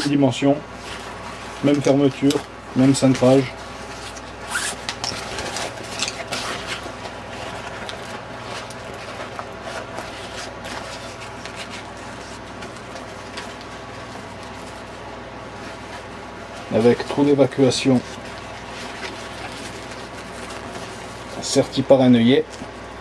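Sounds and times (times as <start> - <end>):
nylon fabric rustling: 0.0 - 23.0
steady low hum: 0.0 - 23.0.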